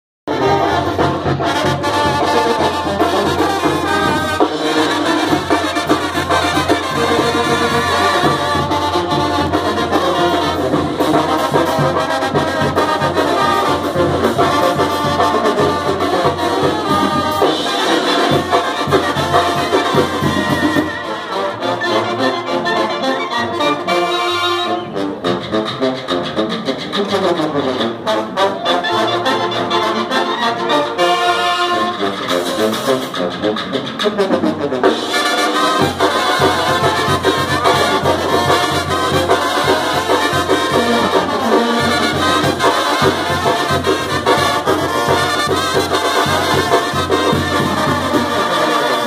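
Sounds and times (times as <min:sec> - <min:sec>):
live brass band music: 0:00.3 - 0:49.0
percussion: 0:00.3 - 0:49.0
trombones: 0:00.3 - 0:49.0
trumpets: 0:00.3 - 0:49.0.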